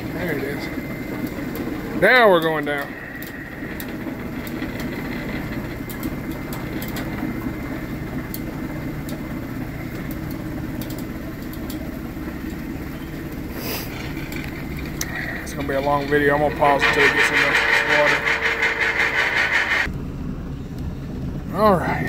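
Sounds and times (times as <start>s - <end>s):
boat lift motor humming: 0.0s - 19.9s.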